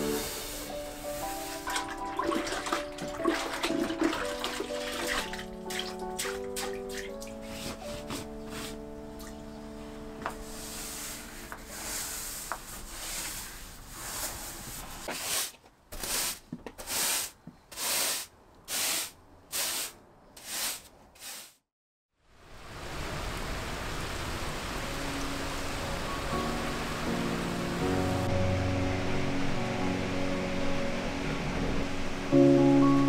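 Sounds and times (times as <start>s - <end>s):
rain hissing: 0.0s - 1.7s, 22.5s - 28.3s
broom sweeping wooden floor: 0.0s - 2.1s, 7.3s - 8.9s, 10.2s - 21.6s.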